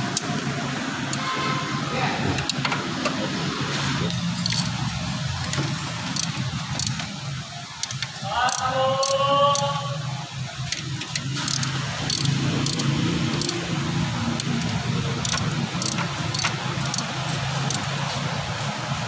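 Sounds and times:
car engine idling: 3.8 - 8.4, 10.1 - 19.0
sharp metallic clicks: 4.0 - 7.1, 7.8 - 9.7, 10.6 - 13.7, 14.3 - 17.9.

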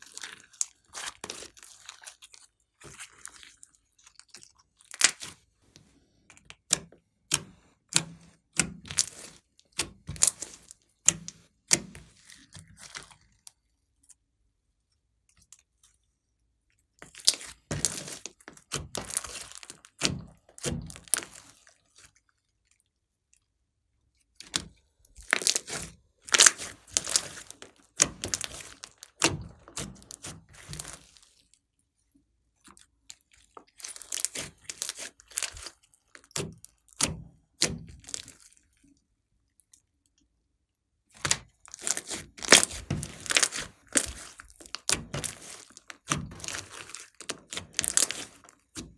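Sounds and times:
slime popping and crackling: 0.0 - 5.5, 6.4 - 13.6, 17.0 - 22.2, 24.3 - 31.5, 32.8 - 38.8, 41.2 - 48.9.

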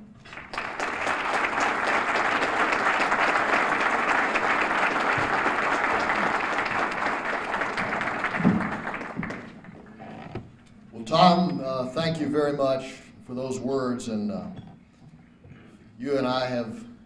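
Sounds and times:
audience applauding: 0.2 - 10.0.

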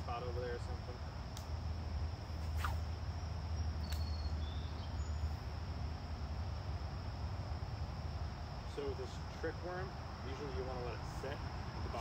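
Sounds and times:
crickets chirping: 0.0 - 12.0
sharp click: 3.8 - 4.2.

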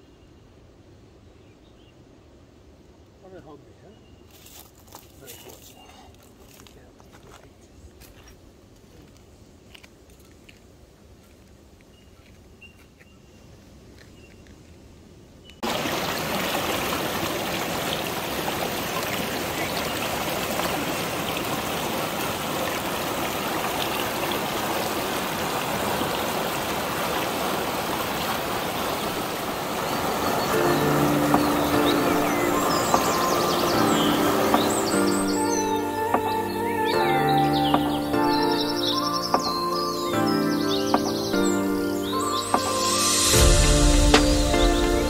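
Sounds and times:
river water rushing through rapids: 15.6 - 45.0.

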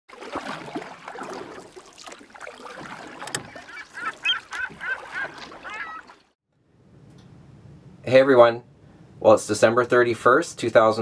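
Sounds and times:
outdoor background noise: 0.1 - 11.0
short bird calls: 3.5 - 6.2.

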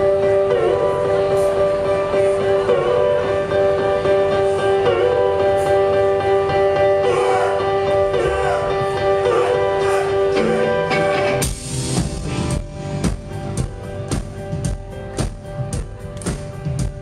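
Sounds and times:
electric guitar chords: 0.0 - 17.0
drums playing steady beat: 11.2 - 17.0.

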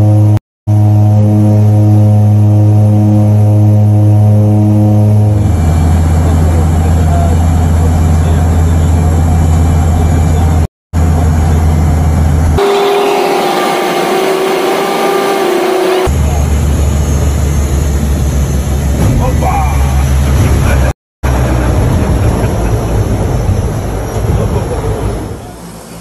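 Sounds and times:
turboprop engines droning: 0.0 - 26.0.

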